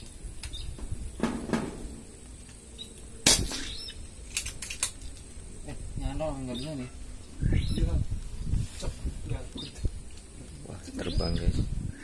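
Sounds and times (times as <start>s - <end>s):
wind rumble on microphone: 0.0s - 12.0s
air rifle shot: 3.2s - 3.9s.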